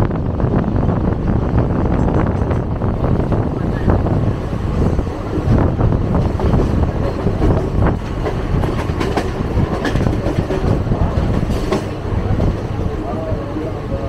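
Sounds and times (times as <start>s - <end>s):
train rumbling on rails: 0.0s - 14.0s
wheels clicking over rail joints: 5.4s - 12.6s.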